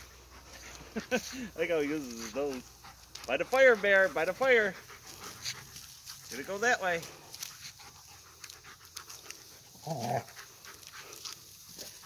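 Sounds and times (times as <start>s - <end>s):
dog panting: 0.0s - 12.0s
dog grunting: 9.7s - 10.7s.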